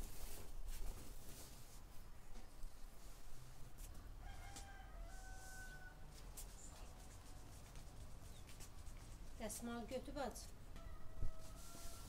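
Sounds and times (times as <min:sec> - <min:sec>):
rooster crowing: 0:04.2 - 0:06.2, 0:10.8 - 0:12.0.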